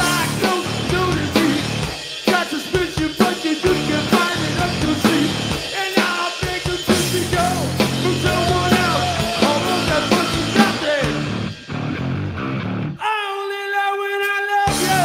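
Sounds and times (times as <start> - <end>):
electric bass guitar: 0.0 - 1.9, 3.6 - 5.5, 6.9 - 13.0, 14.7 - 15.0
person singing: 0.0 - 11.3, 13.0 - 15.0
drum kit: 0.0 - 13.0, 14.7 - 15.0.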